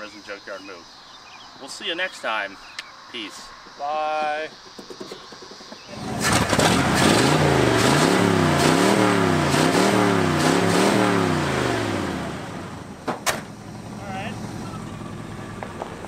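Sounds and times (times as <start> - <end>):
sharp clicks: 2.7 - 3.0
engine revving: 5.9 - 16.0.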